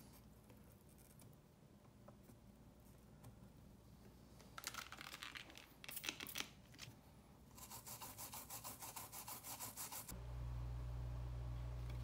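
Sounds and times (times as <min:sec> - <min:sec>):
toothbrush scrubbing circuit board: 0:07.6 - 0:10.1.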